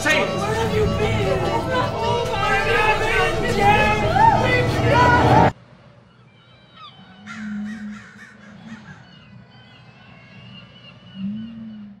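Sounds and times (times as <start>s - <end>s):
faint bird chirps: 6.0s - 12.0s
crows cawing: 6.8s - 11.2s.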